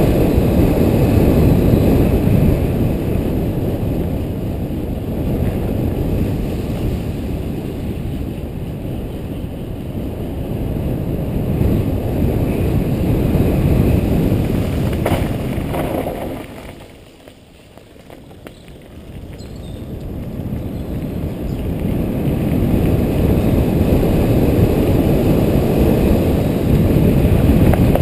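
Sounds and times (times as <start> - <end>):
wind buffeting microphone: 0.0 - 28.0
bike tyres rolling over gravel: 13.1 - 28.0.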